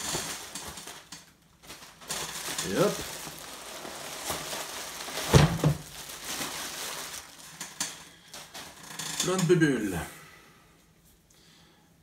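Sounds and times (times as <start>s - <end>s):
bubble wrap crinkling: 0.0s - 9.4s.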